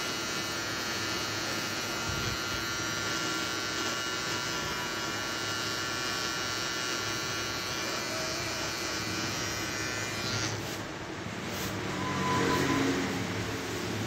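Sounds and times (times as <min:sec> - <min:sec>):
electric beard trimmer buzzing: 0:00.0 - 0:10.8.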